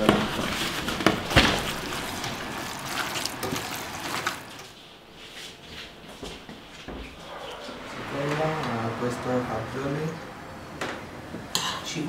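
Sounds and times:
meat squelching mixed by hand: 0:00.0 - 0:04.8.

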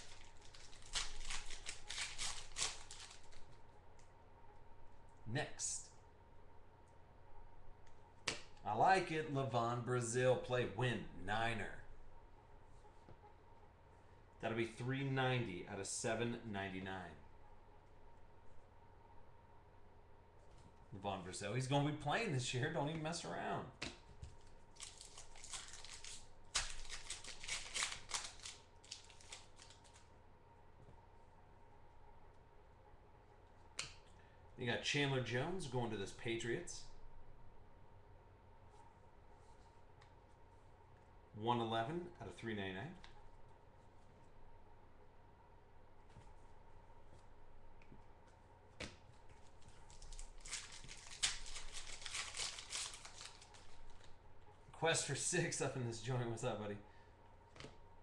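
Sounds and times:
foil wrapper crackling and rustling: 0:00.0 - 0:03.7, 0:24.4 - 0:30.1, 0:49.2 - 0:54.2.

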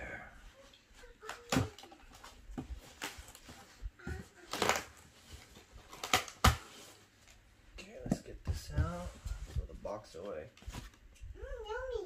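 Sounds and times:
packing material crinkling: 0:04.3 - 0:07.0.

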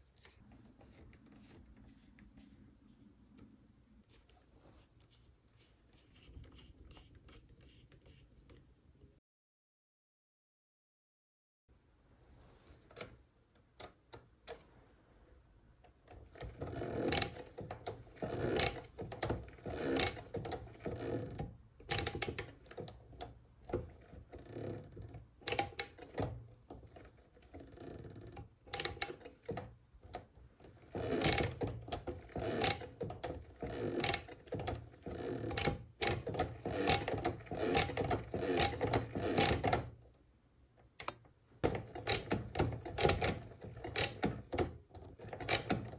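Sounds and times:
hand-cranked calculator clicking: 0:16.1 - 0:39.9, 0:41.6 - 0:45.9.

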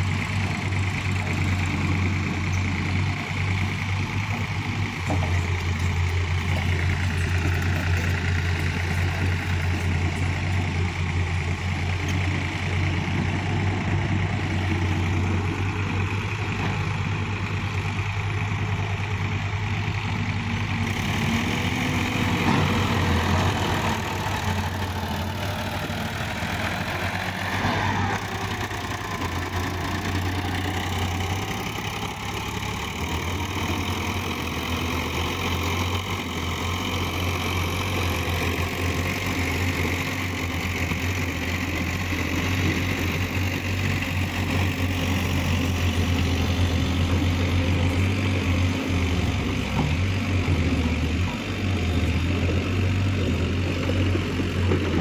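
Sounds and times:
excavator engine running: 0:00.0 - 0:55.0
tractor diesel engine: 0:00.0 - 0:55.0.

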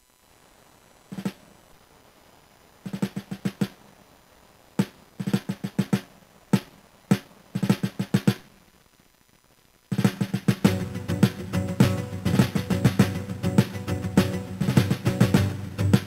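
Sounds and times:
drum-led music: 0:01.2 - 0:01.4, 0:02.9 - 0:03.8, 0:04.8 - 0:08.5, 0:09.9 - 0:16.0.

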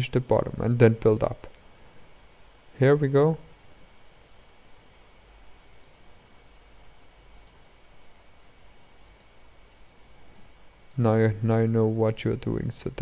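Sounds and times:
low steady hiss: 0:00.0 - 0:13.0
computer mouse clicks: 0:05.7 - 0:06.0, 0:07.3 - 0:07.7, 0:09.0 - 0:09.4, 0:10.3 - 0:11.0
keyboard clicks: 0:05.7 - 0:06.0, 0:07.3 - 0:07.6, 0:09.0 - 0:09.3.

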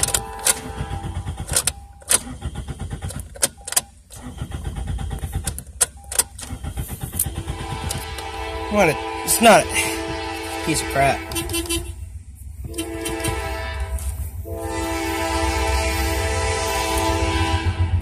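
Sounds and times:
starter clicks: 0:00.0 - 0:08.3
car engine cranking: 0:00.0 - 0:14.4.

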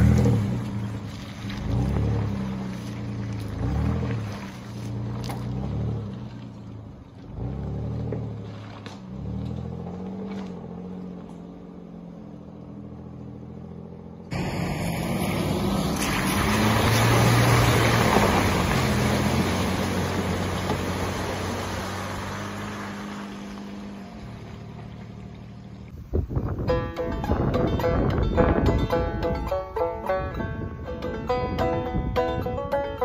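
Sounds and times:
vehicle engine revving: 0:00.0 - 0:26.0.

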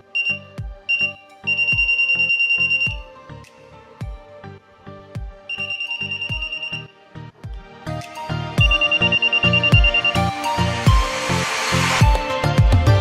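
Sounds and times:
background music with steady beat: 0:00.0 - 0:13.0
voltage detector pen beeping: 0:00.1 - 0:03.1, 0:05.5 - 0:06.9, 0:08.6 - 0:10.4.

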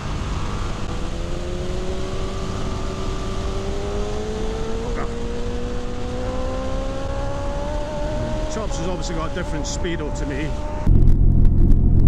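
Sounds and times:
motorcycle engine accelerating: 0:00.0 - 0:12.0
wind and road noise: 0:00.0 - 0:12.0.

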